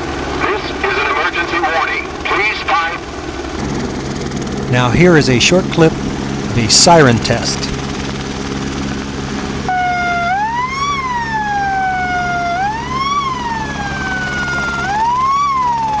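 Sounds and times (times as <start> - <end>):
helicopter drone: 0.0 - 16.0
wailing siren: 9.6 - 16.0.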